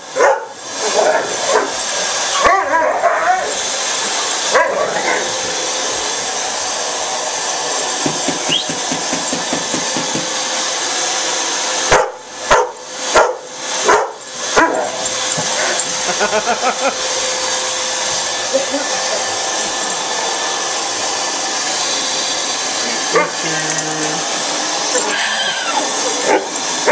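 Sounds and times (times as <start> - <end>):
vacuum cleaner running: 0.0 - 26.9
dog barking: 0.2 - 1.8, 2.4 - 3.5, 11.9 - 15.0.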